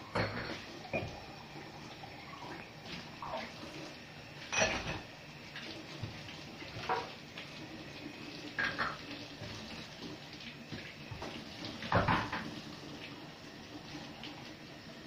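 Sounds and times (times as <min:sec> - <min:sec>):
dishes knocking and clinking: 0:00.1 - 0:01.2, 0:04.5 - 0:05.1, 0:11.9 - 0:12.5
tap running into metal sink: 0:11.1 - 0:12.6.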